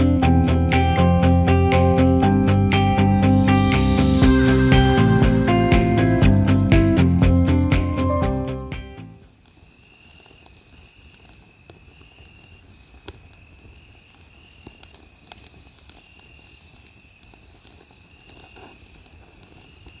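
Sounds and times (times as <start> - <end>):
fire popping: 4.2 - 20.0
wood fire crackling: 4.2 - 20.0
cricket trilling: 9.6 - 20.0.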